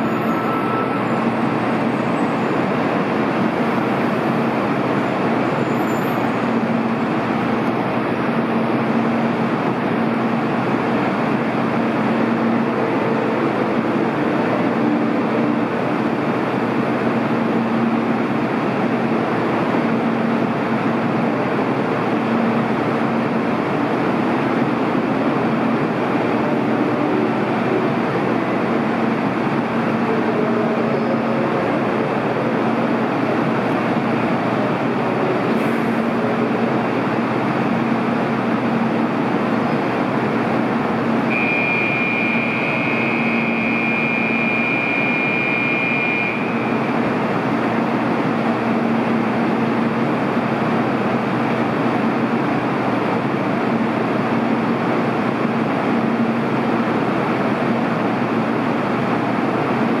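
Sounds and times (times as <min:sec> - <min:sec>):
train standing hum: 0:00.0 - 1:00.0
high steady tone: 0:41.2 - 0:47.0.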